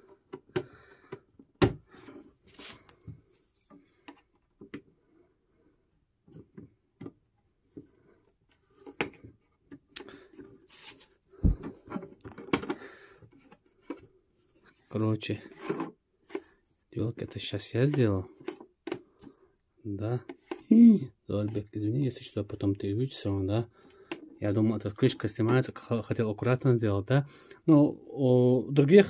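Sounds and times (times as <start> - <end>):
plastic clicks and knocks: 11.6 - 14.0.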